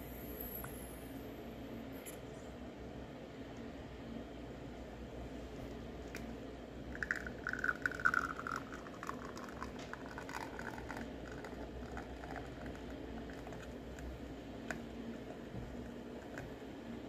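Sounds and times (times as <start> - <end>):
espresso dripping into glass cup: 6.9 - 16.6.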